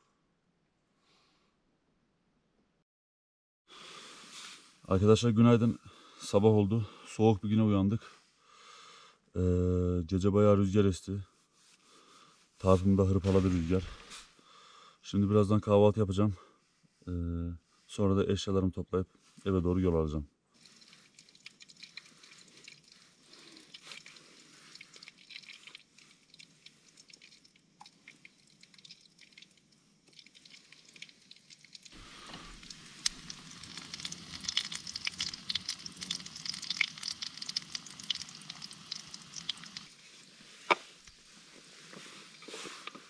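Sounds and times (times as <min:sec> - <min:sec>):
sausage sizzling in a pan: 0:31.9 - 0:40.7.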